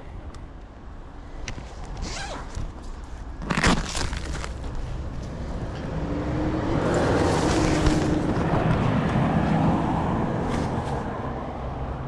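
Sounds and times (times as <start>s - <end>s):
motor vehicle passing: 4.9s - 12.0s.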